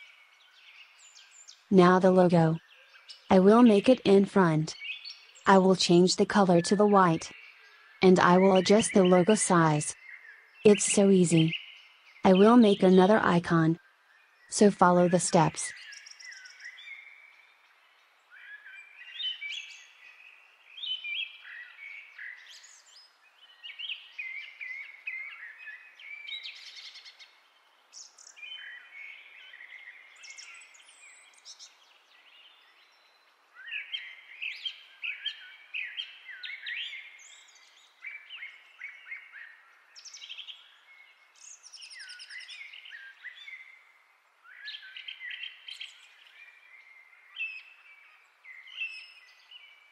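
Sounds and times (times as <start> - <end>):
songbirds chirping and trilling: 0.0 - 49.9.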